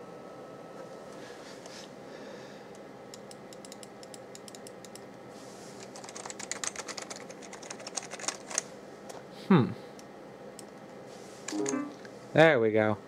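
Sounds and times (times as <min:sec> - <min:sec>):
computer keyboard keys clicking: 0:03.2 - 0:05.1, 0:05.8 - 0:08.6.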